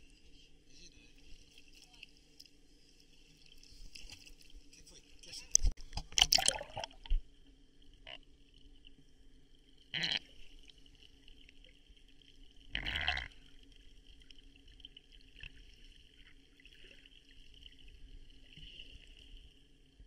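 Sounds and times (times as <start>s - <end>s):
water splashing: 1.2s - 7.2s.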